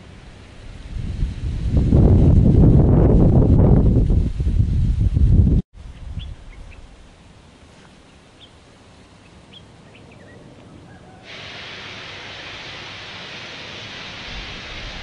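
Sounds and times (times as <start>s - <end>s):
wind rumbling on microphone: 0.0s - 7.2s, 14.1s - 15.0s
steam locomotive blowing off steam: 11.1s - 15.0s.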